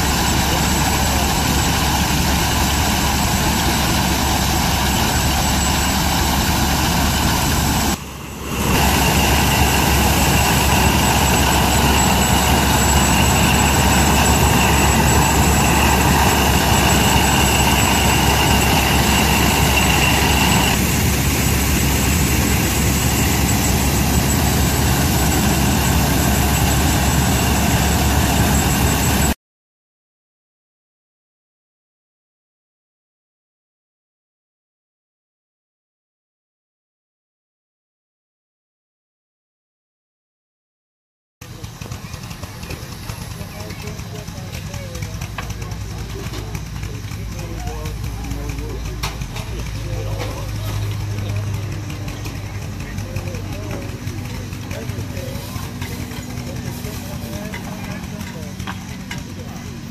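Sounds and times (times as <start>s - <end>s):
high mechanical whine: 0.0s - 29.4s, 41.4s - 59.9s
threshing machine running: 0.0s - 29.4s, 41.4s - 59.9s.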